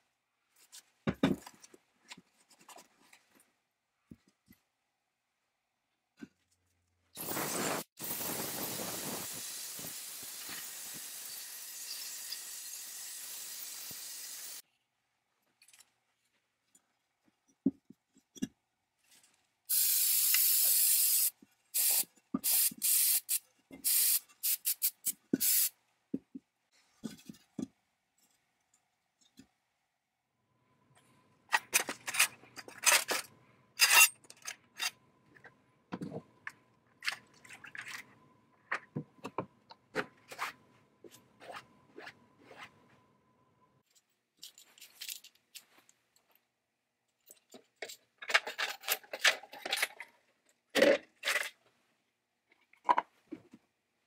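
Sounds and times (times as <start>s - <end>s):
aerosol spray can hissing: 7.2s - 14.6s, 19.7s - 25.7s
metal parts clinking and scraping: 31.5s - 35.0s, 43.9s - 45.8s.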